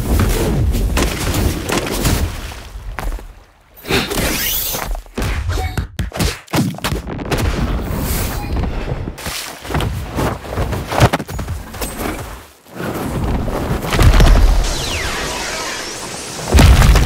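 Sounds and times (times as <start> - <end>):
heavy impacts and blasts: 13.6 - 17.0.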